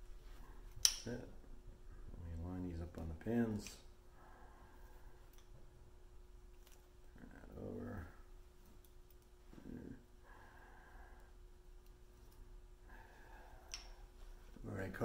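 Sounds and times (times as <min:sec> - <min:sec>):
faint steady hum: 0:00.0 - 0:15.0
man's voice murmuring: 0:07.1 - 0:08.2, 0:09.5 - 0:10.0.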